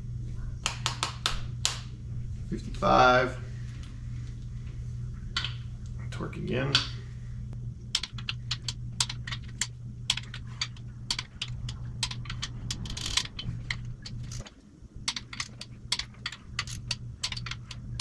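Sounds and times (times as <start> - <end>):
steady low hum: 0.0 - 18.0
torque wrench clicking: 8.0 - 14.5, 15.1 - 18.0.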